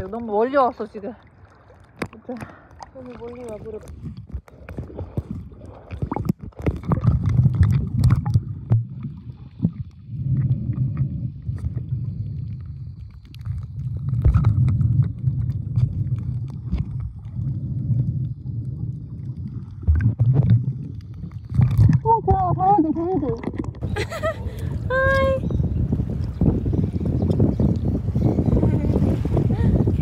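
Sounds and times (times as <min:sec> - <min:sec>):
underwater churning and gurgling: 0:00.0 - 0:30.0
underwater clicks: 0:01.8 - 0:11.9, 0:12.5 - 0:18.4, 0:19.3 - 0:23.9, 0:26.1 - 0:28.0.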